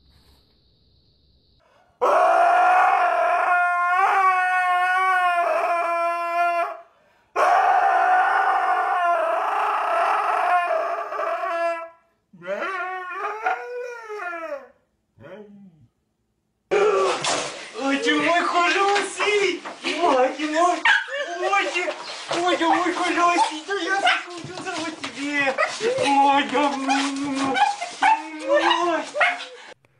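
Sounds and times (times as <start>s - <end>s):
husky howling: 2.0s - 6.8s, 7.4s - 15.4s, 20.0s - 29.7s.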